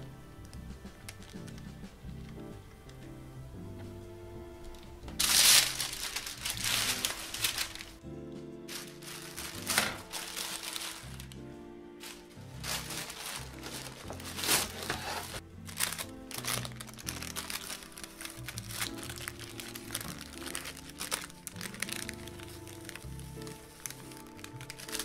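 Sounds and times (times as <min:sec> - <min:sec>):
background music: 0:00.0 - 0:25.0
baking paper crinkling: 0:05.1 - 0:08.0, 0:08.7 - 0:11.4, 0:12.0 - 0:25.0.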